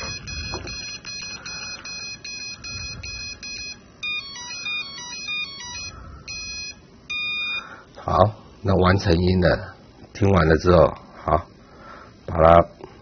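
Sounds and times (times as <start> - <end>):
motor controller beeps: 0.0 - 7.6.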